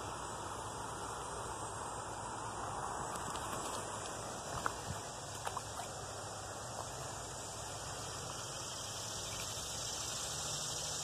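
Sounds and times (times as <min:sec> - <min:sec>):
steady background hiss: 0:00.0 - 0:11.0.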